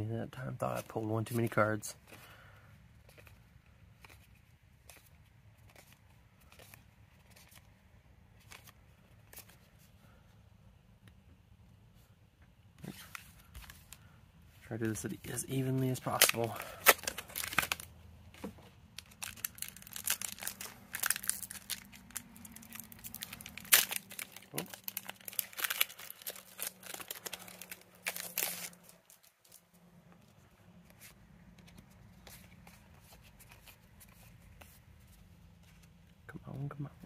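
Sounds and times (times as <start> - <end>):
foil wrapper tearing and crinkling: 15.9 - 17.9, 19.0 - 29.7.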